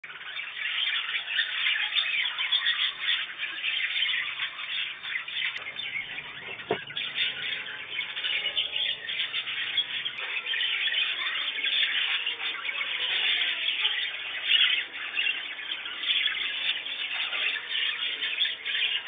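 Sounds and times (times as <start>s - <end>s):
budgerigars chattering and squawking: 0.0s - 19.0s
dull knock: 6.4s - 7.0s.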